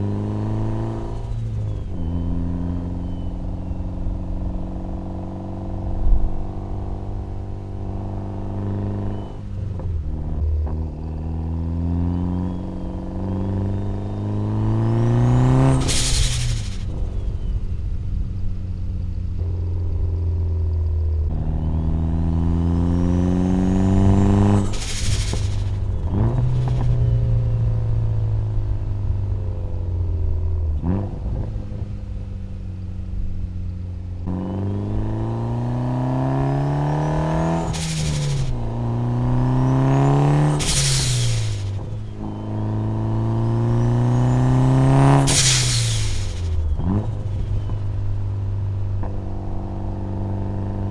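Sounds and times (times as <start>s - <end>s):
car engine accelerating: 0.0s - 50.9s
rushing burst of air: 24.6s - 25.9s, 40.6s - 41.8s, 45.3s - 46.6s.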